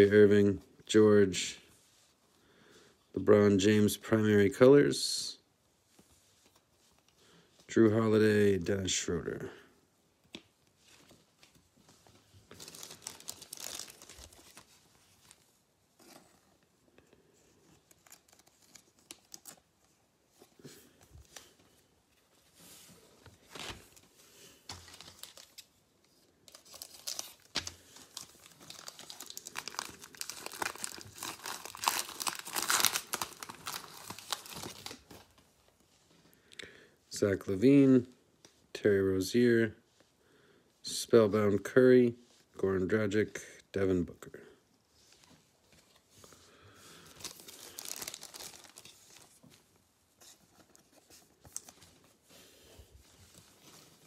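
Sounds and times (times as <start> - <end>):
plastic wrapper tearing and crinkling: 12.5 - 14.8, 17.9 - 19.7, 24.7 - 25.8, 26.5 - 35.3, 47.1 - 49.4.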